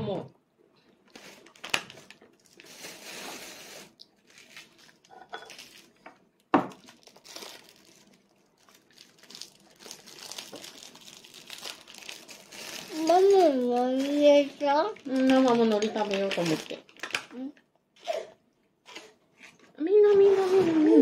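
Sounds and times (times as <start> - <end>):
plastic packet crinkling and tearing: 1.1 - 17.6.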